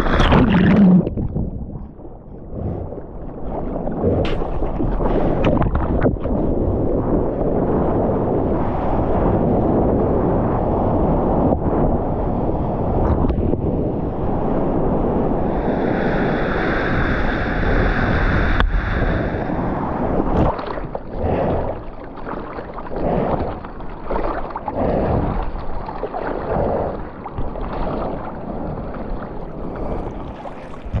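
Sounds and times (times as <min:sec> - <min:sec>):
hand-paddling splashes: 0:00.0 - 0:01.3, 0:04.0 - 0:06.5
water rushing: 0:00.0 - 0:01.4, 0:15.4 - 0:31.0
wind on microphone: 0:00.0 - 0:31.0.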